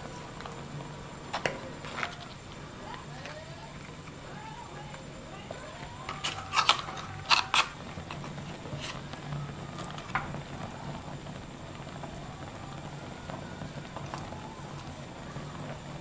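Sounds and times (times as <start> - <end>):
low steady hum: 0.0 - 16.0
metal utensils clinking on shells: 6.1 - 7.8.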